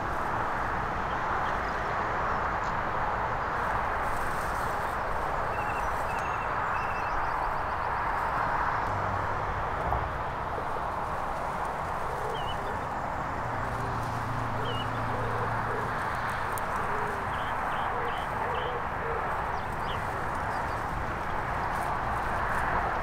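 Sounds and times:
steady rushing noise: 0.0 - 23.0
small birds chirping: 11.8 - 21.9
low cooing calls: 11.9 - 12.8, 13.8 - 20.8.

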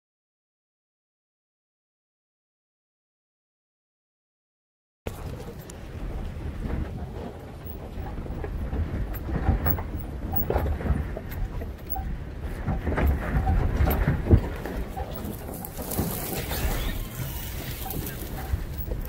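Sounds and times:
knocks and rattles: 5.1 - 19.0
truck rumbling over rough ground: 5.1 - 19.0.

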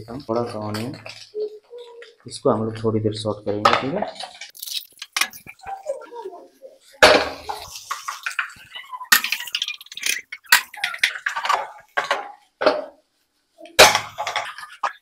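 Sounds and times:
wooden spatula clattering in a pan: 7.0 - 13.0, 13.7 - 15.0.

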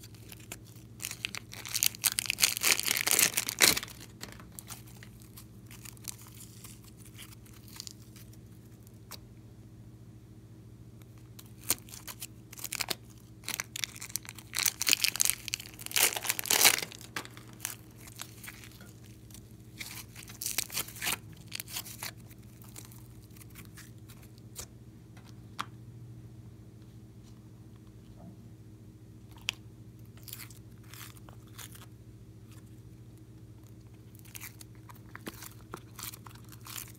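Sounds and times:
plastic bag crinkling: 0.0 - 8.5, 11.4 - 24.4, 34.0 - 36.9
slime squishing: 0.0 - 9.2, 11.0 - 24.7, 29.3 - 32.9, 33.5 - 36.9
faint steady hum: 0.0 - 36.9.

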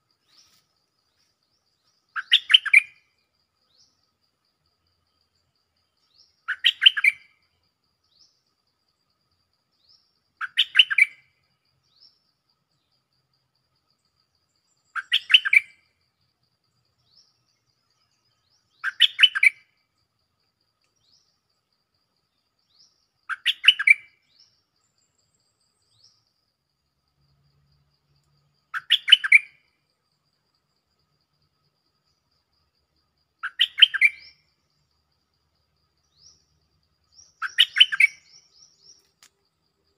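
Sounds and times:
faint high chirps: 9.4 - 39.9
bulbul singing: 28.7 - 29.6, 33.4 - 34.8, 36.0 - 39.4.

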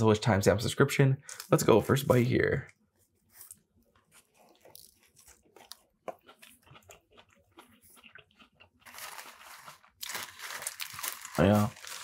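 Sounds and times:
chewing with mouth clicks: 3.3 - 10.1.

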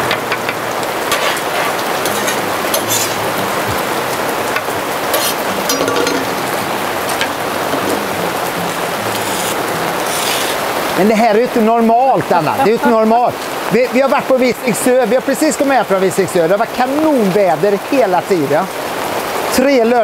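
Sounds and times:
heavy rain pouring: 0.0 - 20.0
drops tapping hard surfaces: 4.5 - 8.1.

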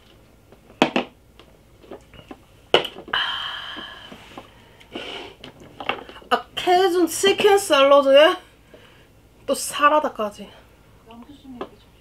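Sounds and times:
breathy exhale: 3.1 - 5.4.

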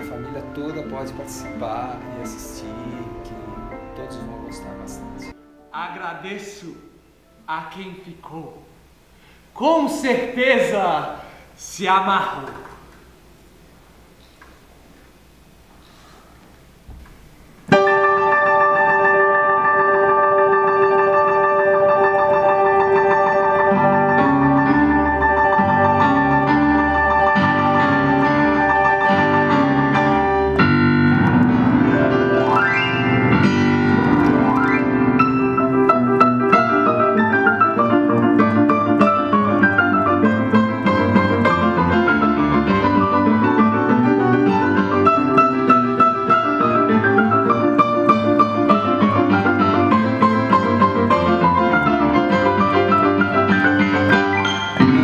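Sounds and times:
piano four hands: 16.8 - 55.0.

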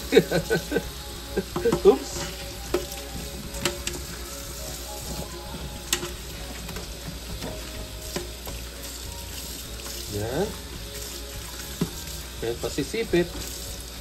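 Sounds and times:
sponge scrubbing crabs: 0.0 - 14.0
tap running into metal sink: 1.4 - 3.0.

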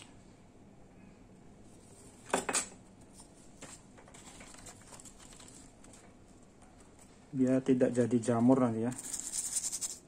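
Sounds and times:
newspaper rustle: 3.6 - 6.1.

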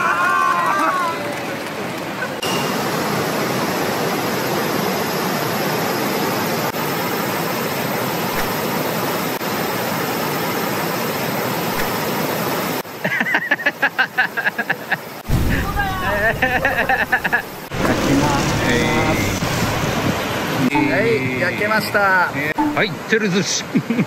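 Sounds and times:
person laughing: 13.0 - 15.1, 16.0 - 17.5.

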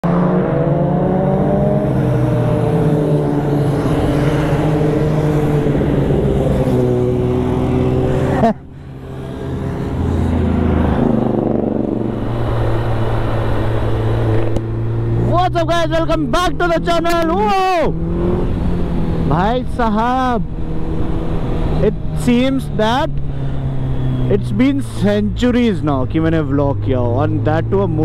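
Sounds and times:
motor vehicle engine: 0.0 - 28.0.

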